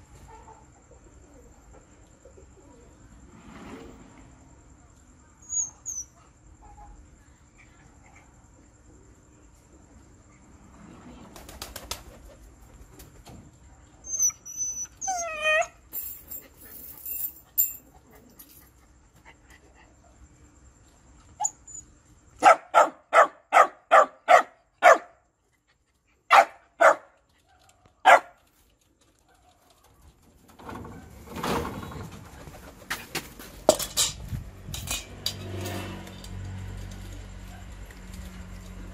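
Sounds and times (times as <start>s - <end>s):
dog barking sharply: 22.4s - 25.1s, 26.3s - 27.1s, 28.0s - 28.4s.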